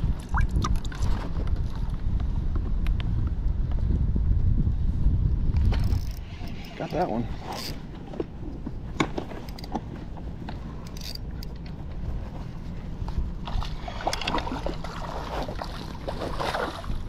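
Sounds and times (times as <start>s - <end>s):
low rumble: 0.0s - 17.0s
water splashing against kayak hull: 13.0s - 17.0s.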